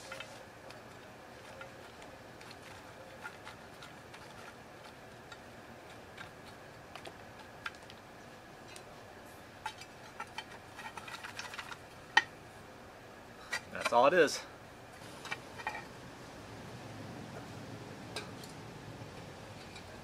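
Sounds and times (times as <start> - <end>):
wood chips clicking and rattling: 0.0 - 8.0, 9.6 - 12.3.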